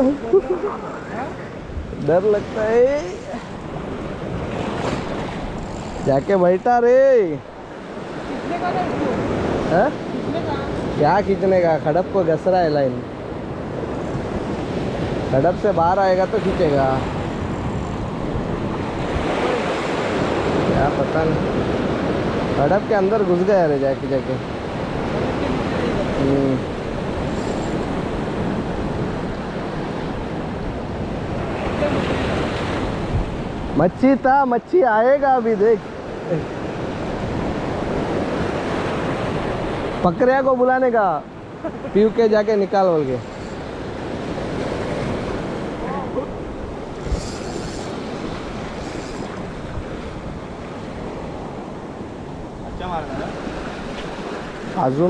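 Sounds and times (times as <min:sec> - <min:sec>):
small waves breaking on shore: 0:00.0 - 0:55.0
wind on microphone: 0:24.5 - 0:33.8, 0:43.2 - 0:54.8.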